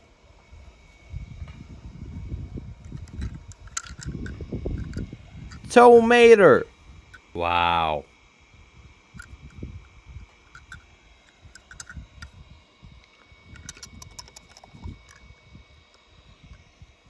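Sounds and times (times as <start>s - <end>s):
toy truck clicks and taps: 2.9s - 5.0s, 10.5s - 12.3s, 13.0s - 15.2s.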